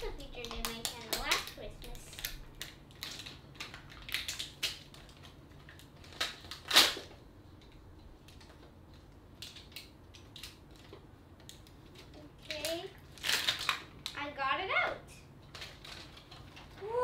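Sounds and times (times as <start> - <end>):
packaging crinkling and tearing: 0.2 - 7.1, 9.4 - 14.2, 15.4 - 17.0.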